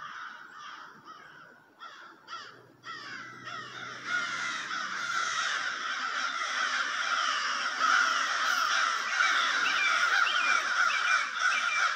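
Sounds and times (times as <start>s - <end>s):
crows cawing: 0.0s - 11.9s.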